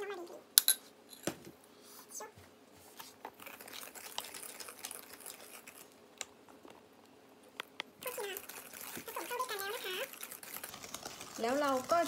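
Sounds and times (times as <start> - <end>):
whisk swishing in batter: 8.1 - 12.0.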